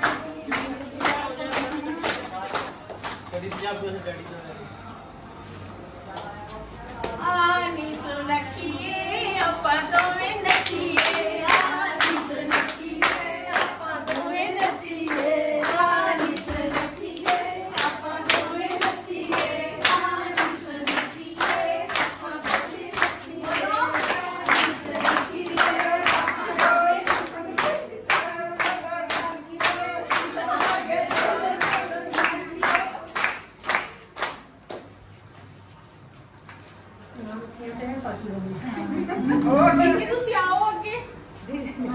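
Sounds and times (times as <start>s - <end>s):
people clapping along: 0.0s - 4.4s, 6.1s - 35.4s
group singing folk song: 7.8s - 33.4s.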